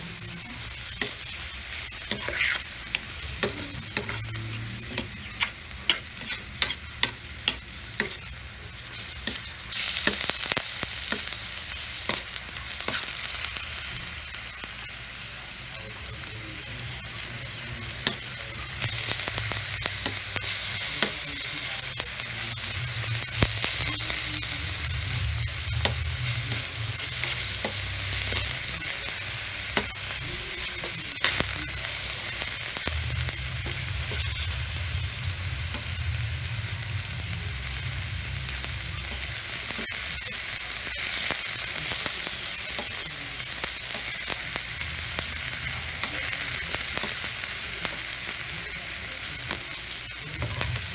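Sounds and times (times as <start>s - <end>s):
meat sizzling in a wok: 0.0s - 50.9s
metal spoon scraping a pan: 1.0s - 10.2s.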